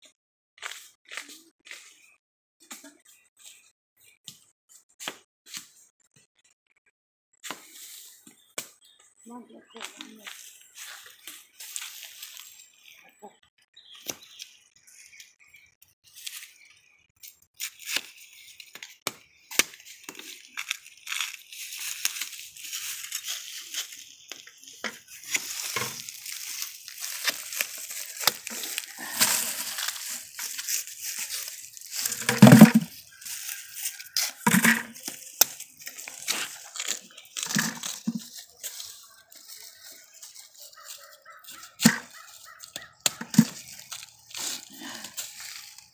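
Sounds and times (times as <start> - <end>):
dry leaves crackling and rustling: 9.8 - 12.7, 19.8 - 45.9.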